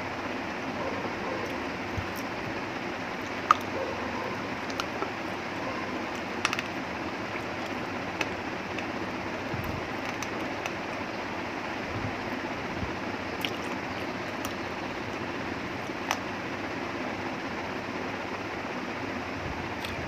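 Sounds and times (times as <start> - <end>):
person chewing: 3.2 - 8.9, 13.4 - 14.6
wet mouth clicks and smacks: 4.6 - 5.1.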